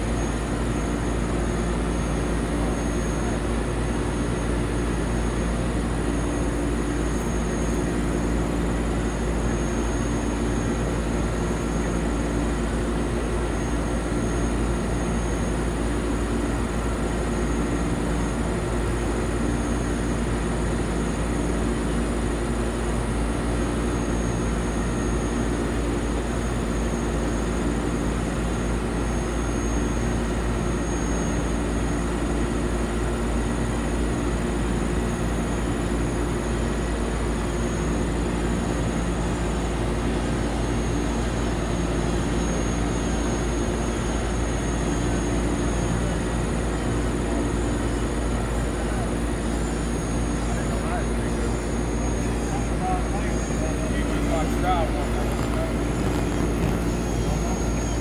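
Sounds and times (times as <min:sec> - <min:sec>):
diesel engine droning: 0:46.3 - 0:58.0.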